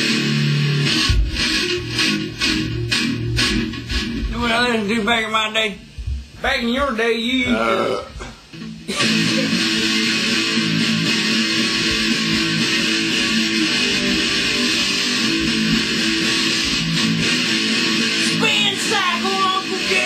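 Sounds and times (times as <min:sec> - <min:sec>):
electric guitar playing metal: 0:00.0 - 0:05.0, 0:07.4 - 0:20.0.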